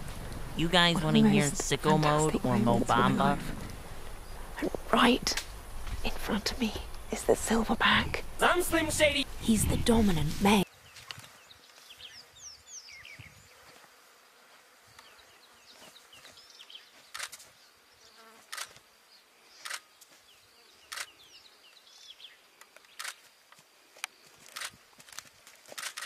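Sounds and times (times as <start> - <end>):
birds chirping: 0.0 - 13.6
faint insect buzzing: 0.2 - 25.0.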